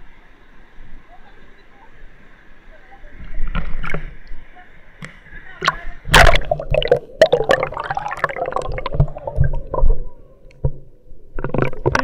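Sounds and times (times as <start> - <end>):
water sloshing and gurgling: 3.3 - 4.5, 5.1 - 12.0
loud splash: 5.6 - 10.0.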